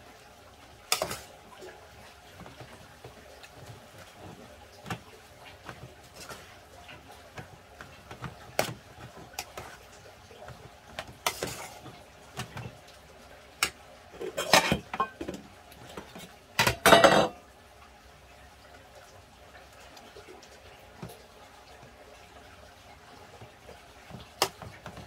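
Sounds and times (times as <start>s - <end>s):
utensils clinking on dishes: 0.9s - 1.3s, 11.3s - 11.9s, 13.6s - 15.4s, 16.2s - 17.4s.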